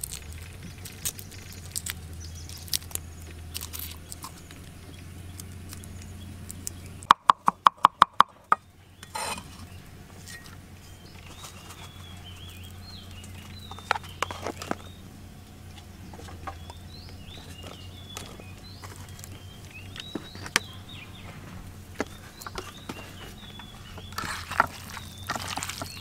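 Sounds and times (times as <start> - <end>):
small birds chirping: 0.0 - 26.0
cleaver chopping on wooden board: 7.1 - 8.6.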